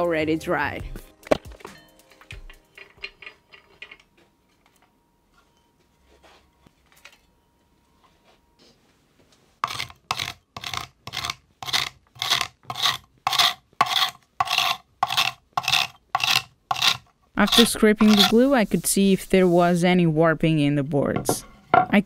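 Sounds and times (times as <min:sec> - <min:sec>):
scraper scraping wood: 0:09.6 - 0:19.4
wooden boards knocking: 0:21.2 - 0:22.0.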